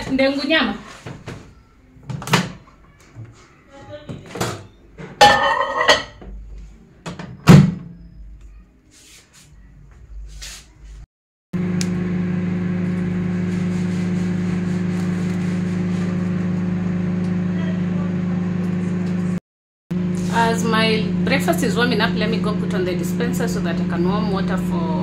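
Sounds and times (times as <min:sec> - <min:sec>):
microwave oven humming: 0:11.6 - 0:19.4, 0:20.0 - 0:25.0.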